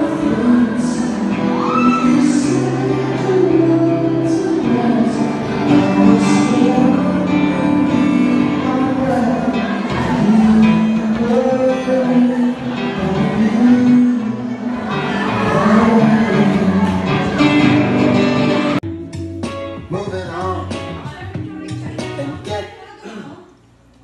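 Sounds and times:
man singing into a microphone: 0.0 - 18.8, 21.8 - 23.2
acoustic guitar strumming: 0.0 - 22.6.

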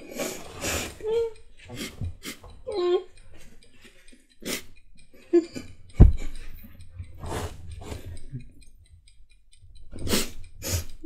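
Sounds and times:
people sniffing and blowing: 0.0 - 1.0, 7.2 - 8.1
person whimpering: 2.7 - 3.2.

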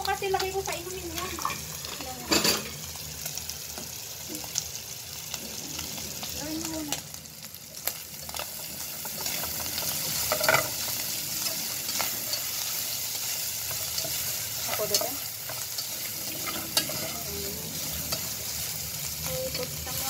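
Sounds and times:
beef sizzling in a pan: 0.0 - 20.0
spatula scraping a pan: 9.0 - 20.0.

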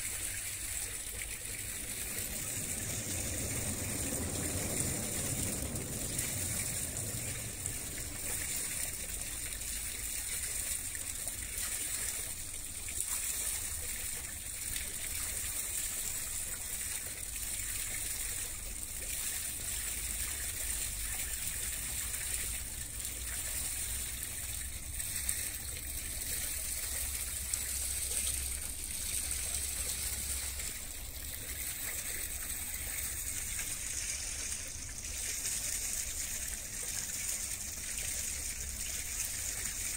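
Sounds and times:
water lapping and trickling: 0.0 - 39.9
low rumble: 1.0 - 10.1.

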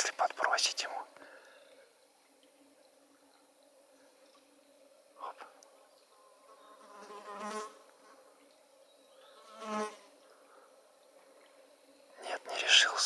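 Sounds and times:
flying insect buzzing past: 6.1 - 8.4, 9.4 - 10.2.

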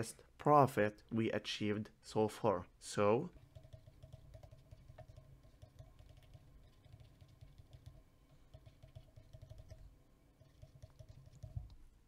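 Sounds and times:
faint low hum: 0.0 - 12.0
stylus tapping on tablet screen: 3.4 - 11.8.

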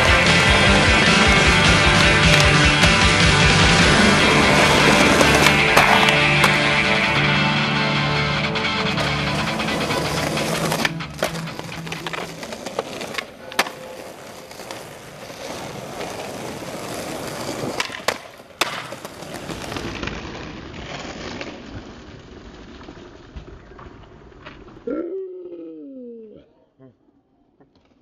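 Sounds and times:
skateboard wheels rolling on concrete: 0.0 - 24.9
skateboard clacking on ground: 1.3 - 2.8, 3.7 - 7.1, 8.9 - 24.8.

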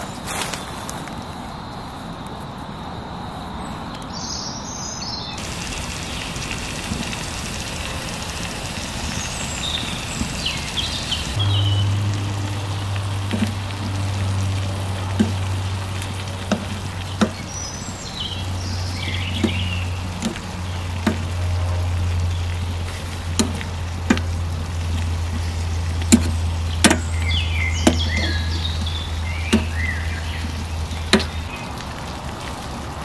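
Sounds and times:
steady low hum: 5.4 - 31.5
food frying in a pan: 5.4 - 33.0
bird chirps: 8.1 - 12.7, 17.0 - 20.1, 26.6 - 31.7.

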